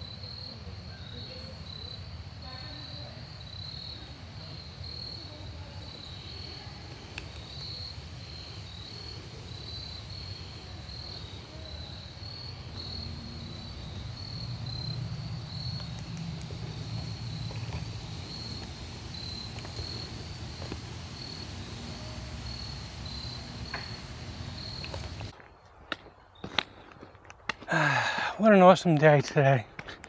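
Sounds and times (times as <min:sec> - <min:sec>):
crickets chirping: 0:00.0 - 0:25.4
low steady rumble: 0:12.2 - 0:25.3.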